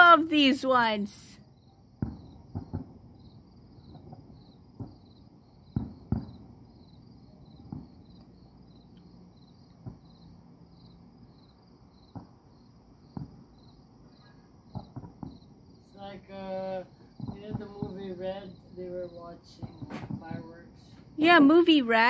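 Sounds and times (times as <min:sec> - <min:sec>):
crickets chirping: 0:00.0 - 0:22.0
distant fireworks bangs: 0:01.9 - 0:08.6, 0:09.7 - 0:10.4, 0:11.9 - 0:21.8.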